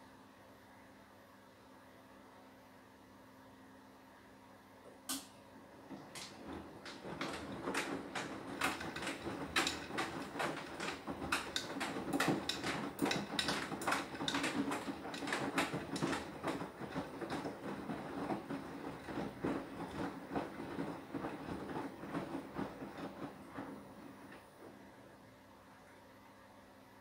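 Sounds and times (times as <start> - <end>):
washing machine click: 5.1 - 18.3
washing machine rushing noise: 5.6 - 25.2
laundry knocking in drum: 5.8 - 24.2.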